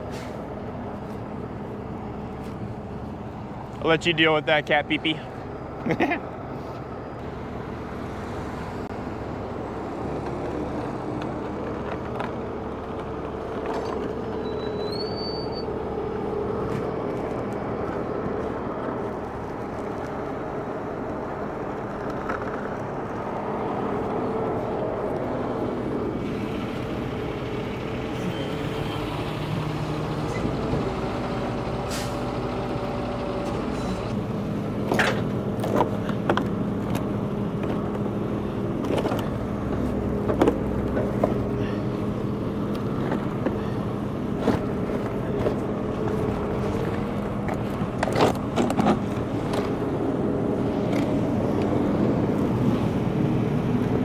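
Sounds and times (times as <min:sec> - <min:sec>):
diesel truck engines idling: 0:00.0 - 0:54.0.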